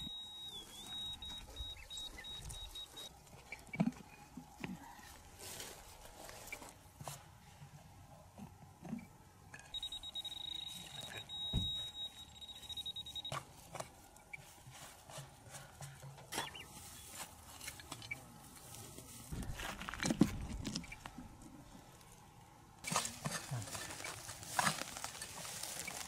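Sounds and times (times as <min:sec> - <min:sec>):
high-pitched beeping tone: 0:00.0 - 0:03.1, 0:09.7 - 0:13.4
hand scraping soil and grass: 0:22.8 - 0:26.0.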